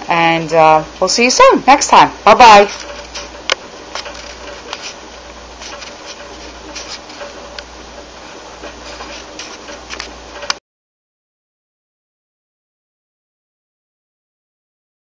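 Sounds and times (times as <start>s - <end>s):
room hiss: 0.0s - 10.6s.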